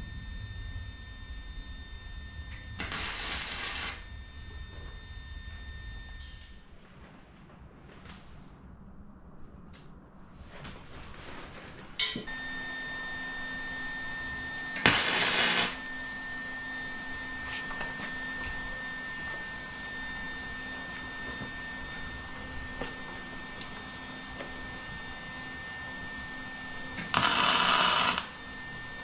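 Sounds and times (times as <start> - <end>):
steady hum: 0.0 - 29.0
arc welding crackling hiss: 2.7 - 4.1, 14.8 - 16.0, 27.0 - 28.4.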